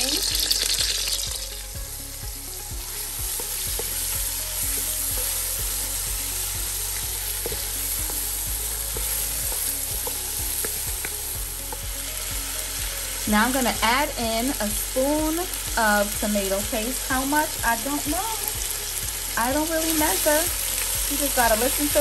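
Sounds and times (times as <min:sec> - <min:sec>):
onions sizzling in hot oil: 0:00.0 - 0:22.0.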